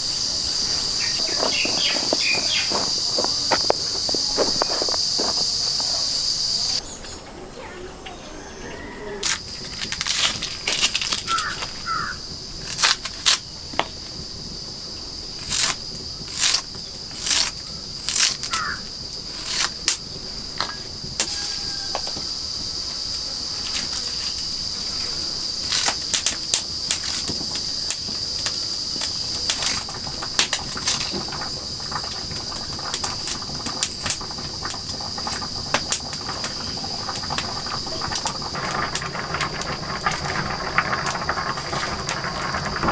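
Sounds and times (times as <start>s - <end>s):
high-pitched insect trill: 0.0s - 42.9s
bird chirping: 0.1s - 3.2s
onions crunching on a blade: 15.4s - 20.0s.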